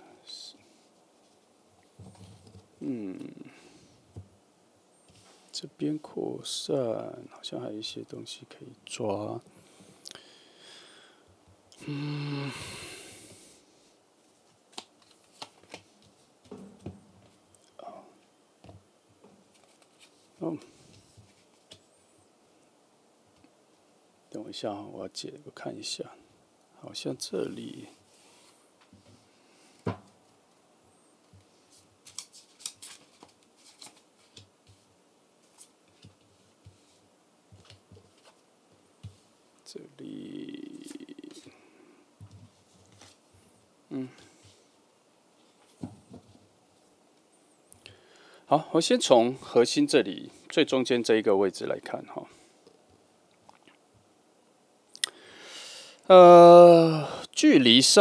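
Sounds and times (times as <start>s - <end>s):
person humming: 2.8s - 3.8s, 11.8s - 13.3s, 40.1s - 41.6s, 43.9s - 44.4s, 56.1s - 57.2s.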